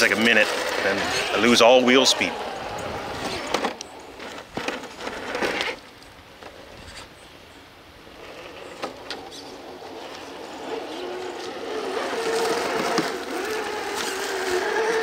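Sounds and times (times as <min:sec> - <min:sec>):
electric motor whirring: 0:00.0 - 0:05.8, 0:08.2 - 0:15.0
tyres scrabbling on rock: 0:00.0 - 0:07.1, 0:08.2 - 0:15.0.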